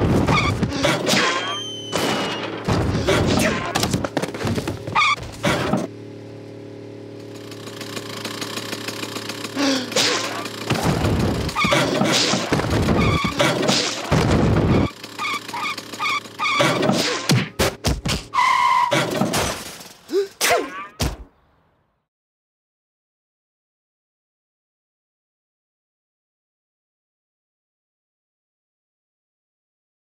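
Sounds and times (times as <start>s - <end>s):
thuds and loud noises: 0.0s - 5.9s, 10.0s - 14.9s
cartoon car engine: 0.0s - 21.2s.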